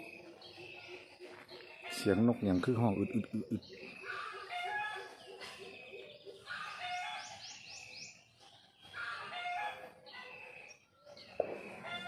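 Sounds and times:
small birds chirping: 0:00.0 - 0:12.0
roosters crowing: 0:04.0 - 0:05.3, 0:08.9 - 0:10.1, 0:11.7 - 0:12.0.

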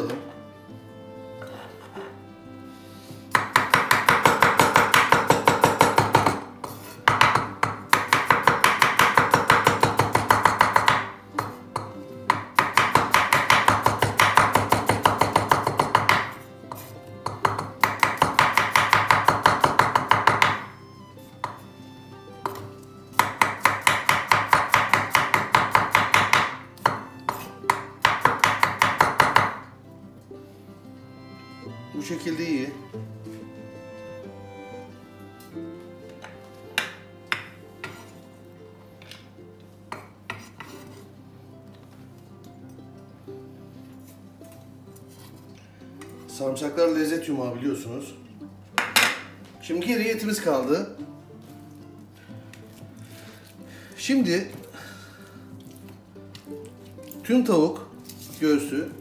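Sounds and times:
knife chopping on wooden board: 0:03.3 - 0:20.7, 0:22.4 - 0:29.7, 0:36.2 - 0:38.1.

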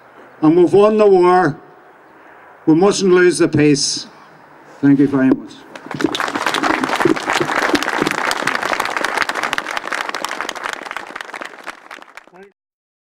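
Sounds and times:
crowd applauding: 0:05.7 - 0:12.5.

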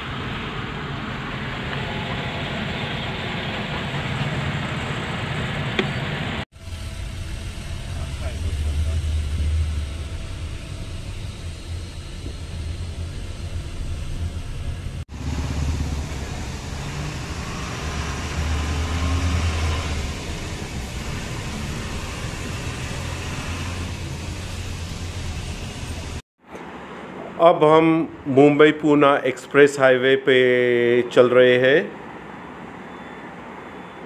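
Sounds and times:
car cabin road noise: 0:00.0 - 0:26.7.

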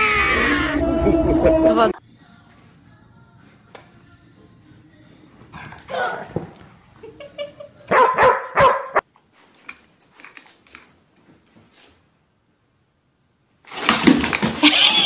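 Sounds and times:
dog barking: 0:05.6 - 0:06.5, 0:07.9 - 0:09.0.

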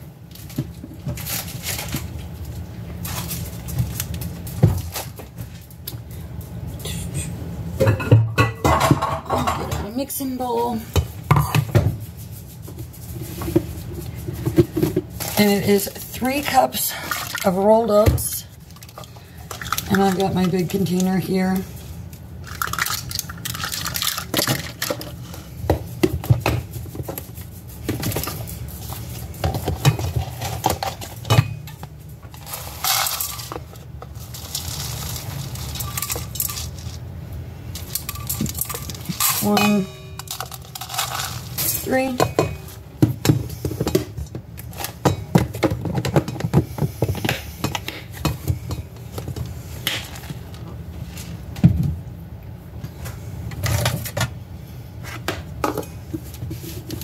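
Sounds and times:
oats rattling on metal bowl: 0:32.4 - 0:37.0, 0:37.8 - 0:42.4.

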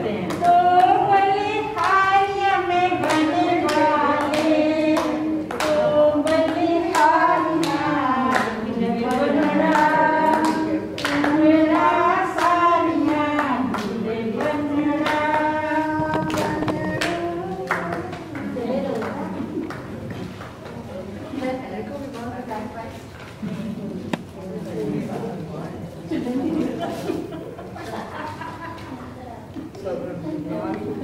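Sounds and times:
person singing a melody: 0:00.0 - 0:18.3.

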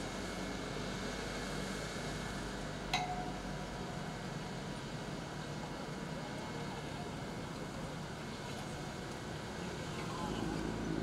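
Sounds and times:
short ring: 0:03.0 - 0:03.4
distant engines droning: 0:07.8 - 0:11.0.

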